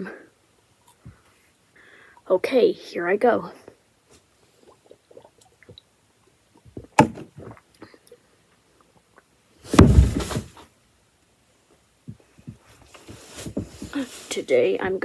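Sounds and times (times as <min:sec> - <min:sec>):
heavy thud: 0:06.7 - 0:07.5, 0:09.7 - 0:10.6
rustle: 0:12.6 - 0:15.0.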